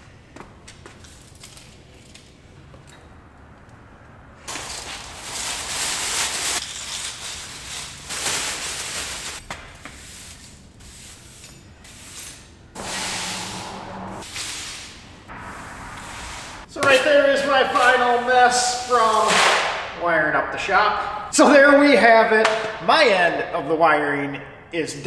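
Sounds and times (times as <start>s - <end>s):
broom sweeping concrete floor: 4.5s - 19.6s.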